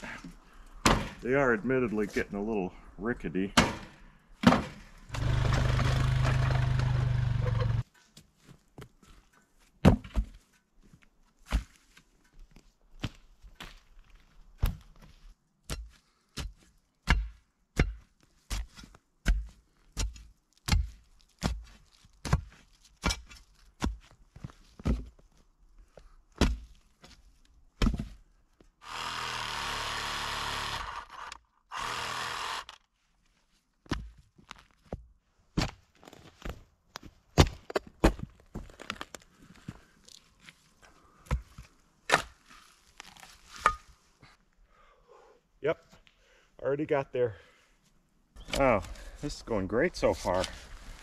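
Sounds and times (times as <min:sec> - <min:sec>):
digging bar thudding ground: 0:00.2 - 0:01.4, 0:03.5 - 0:07.8, 0:15.7 - 0:25.2, 0:26.4 - 0:27.2, 0:27.8 - 0:28.2, 0:34.9 - 0:36.6, 0:41.3 - 0:44.0
atv engine running: 0:05.1 - 0:07.8
cordless power tool running: 0:05.1 - 0:07.8, 0:28.8 - 0:32.8.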